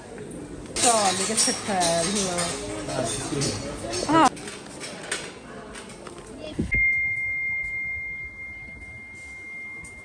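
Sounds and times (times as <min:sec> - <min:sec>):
busy store hum and clatter: 0:00.0 - 0:10.0
high-pitched electronic beep tone: 0:06.7 - 0:10.0.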